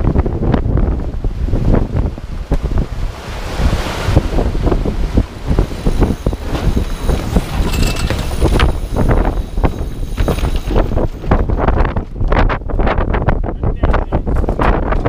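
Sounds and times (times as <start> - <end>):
wind buffeting microphone: 0.0 - 15.0
knocks and clicks from gear: 6.5 - 8.9.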